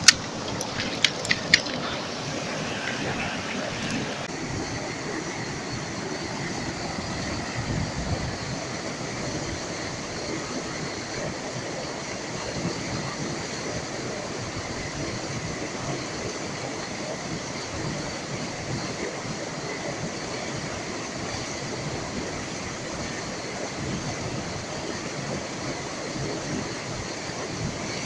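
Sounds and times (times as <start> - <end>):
stream rushing over boulders: 0.0 - 4.4.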